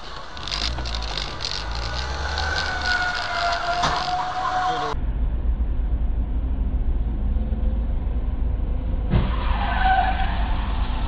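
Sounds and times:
tyres skidding squeal: 0.0s - 5.0s, 9.2s - 11.0s
car engine and road rumble: 0.0s - 11.0s.

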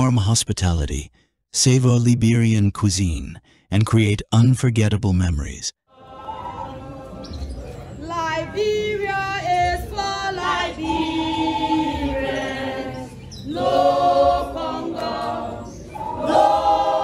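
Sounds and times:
choir singing held notes: 5.9s - 17.0s.

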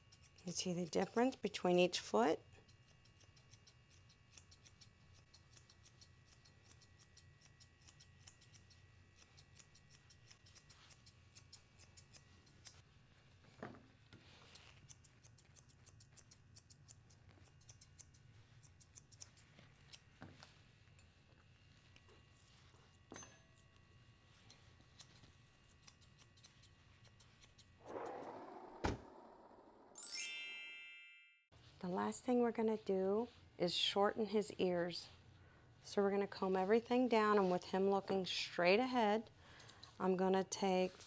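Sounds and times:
grooming shears snipping hair: 0.0s - 28.4s.

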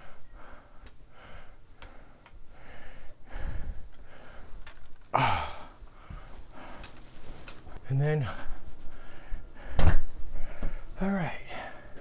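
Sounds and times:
person breathing in soft puffs: 0.0s - 12.0s
person sighing loudly: 5.1s - 5.8s.

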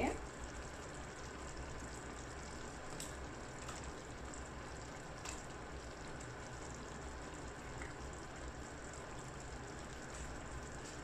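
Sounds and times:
masala sizzling in a pot: 0.0s - 11.0s.

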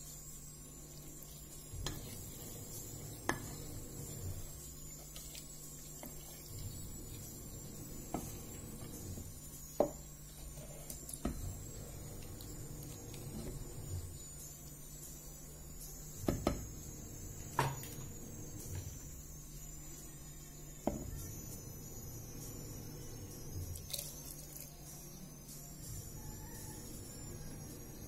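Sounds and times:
wooden spoon stirring in glass jar: 0.9s - 14.2s.

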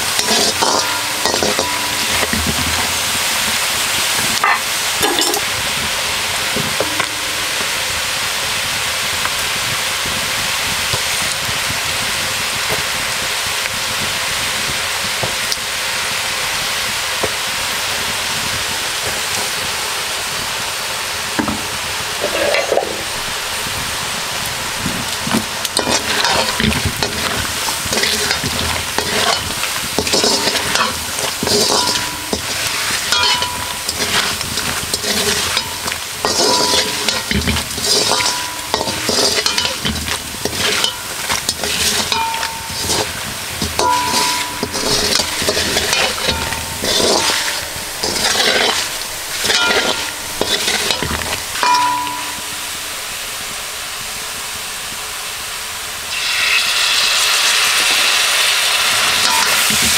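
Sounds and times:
metal spoon scraping a wok: 0.0s - 5.6s, 6.4s - 7.8s, 22.2s - 23.0s, 25.6s - 52.7s, 57.5s - 59.9s
meat sizzling in hot oil: 0.0s - 59.9s.

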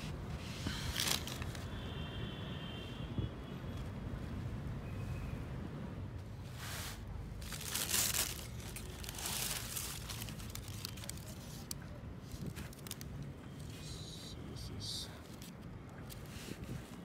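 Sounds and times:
tissue paper crinkling: 0.9s - 1.7s, 6.8s - 13.1s.

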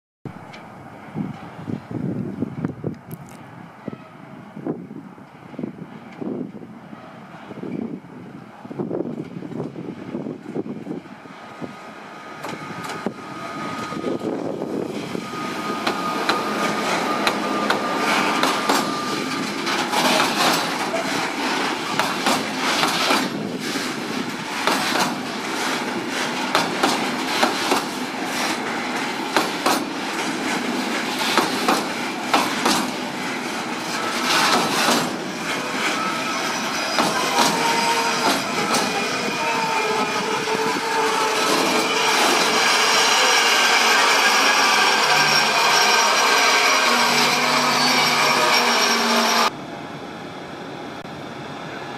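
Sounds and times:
thin squealing tones: 12.7s - 22.8s, 33.3s - 49.5s
train wheels clattering over rail joints: 14.6s - 49.5s.

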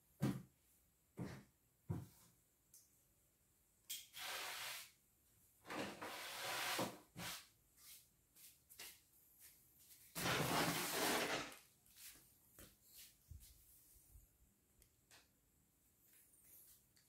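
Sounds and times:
cardboard box sliding on floor: 5.7s - 7.4s, 10.2s - 11.6s
rubbing and scraping: 10.1s - 12.2s.

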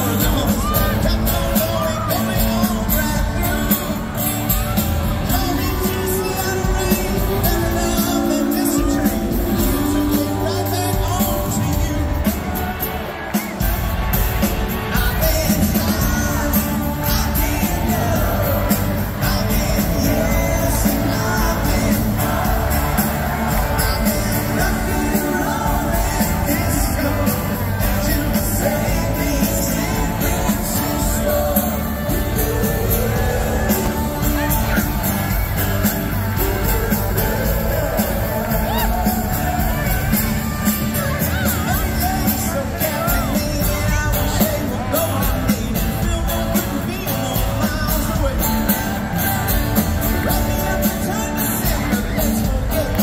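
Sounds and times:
person singing: 0.0s - 53.0s
pop-rock band playing: 0.0s - 53.0s.

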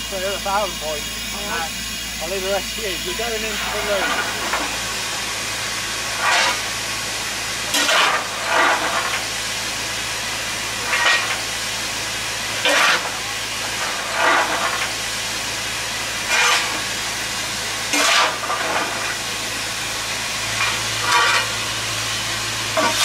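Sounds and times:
steam hissing: 0.0s - 23.0s
shovel scraping on steel plate: 6.2s - 6.6s, 7.7s - 9.0s, 12.6s - 13.1s, 16.3s - 16.8s, 17.9s - 19.2s, 20.6s - 21.6s, 22.8s - 23.0s.

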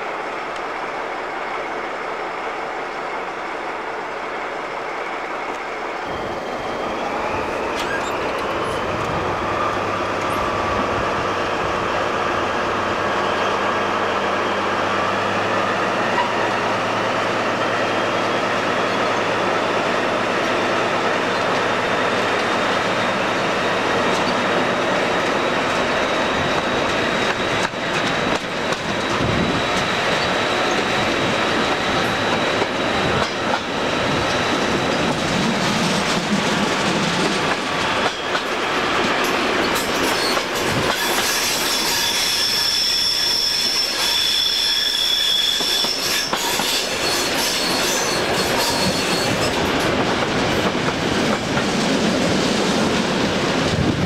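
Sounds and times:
train wheels rumbling and clattering: 0.0s - 54.0s
high wheel squeal: 7.1s - 10.7s, 15.0s - 17.0s, 25.4s - 35.2s, 39.6s - 49.8s.

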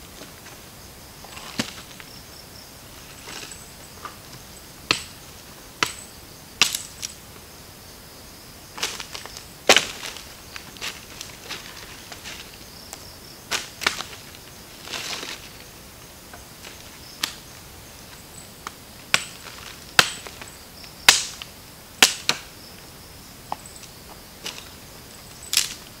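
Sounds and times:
dry leaves rustling: 0.0s - 4.5s, 8.7s - 20.6s
faint insect drone: 0.0s - 26.0s
dry sticks snapping: 5.8s - 6.0s, 6.6s - 7.2s, 12.9s - 14.2s, 17.2s - 17.4s, 18.6s - 20.5s, 25.5s - 25.9s.

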